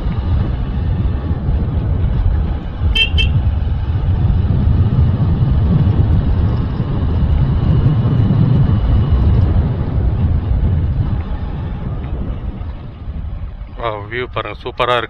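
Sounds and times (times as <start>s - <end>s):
wind and road noise: 0.0s - 15.0s
motorcycle horn beeps: 3.0s - 3.4s.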